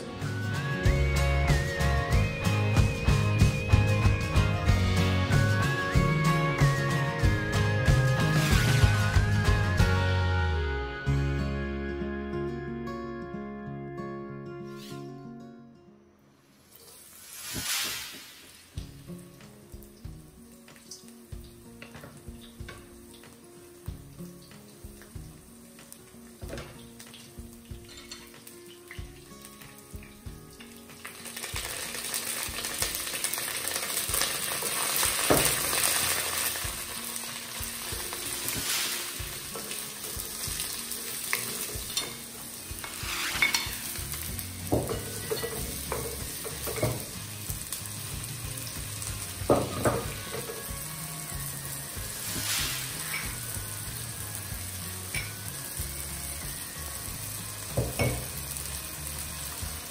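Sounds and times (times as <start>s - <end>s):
oil sizzling in a wok: 0.0s - 10.1s, 16.6s - 59.9s
wooden spoon knocking a pan: 44.7s - 47.2s, 49.4s - 50.6s, 57.7s - 58.4s.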